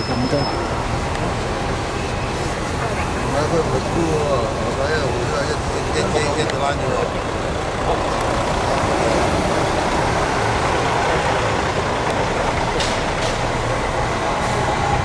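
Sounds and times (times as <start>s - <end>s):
bus engine and road noise: 0.0s - 15.0s.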